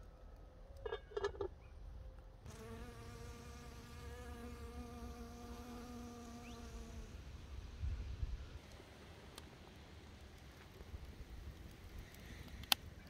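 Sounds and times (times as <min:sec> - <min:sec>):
honeybee buzzing in flight: 0:02.5 - 0:07.1.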